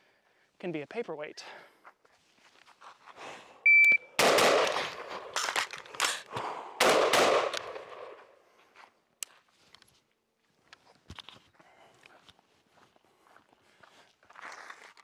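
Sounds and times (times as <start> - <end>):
short electronic beep: 3.7 - 4.1
rifle shots echoing: 4.2 - 6.2, 6.8 - 8.3.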